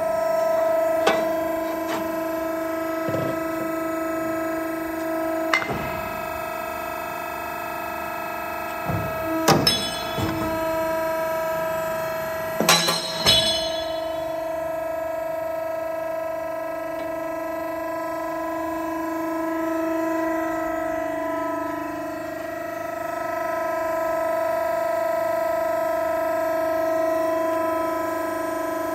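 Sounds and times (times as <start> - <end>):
motor and pump humming: 0.0 - 28.9
loud metallic bangs: 0.7 - 15.2.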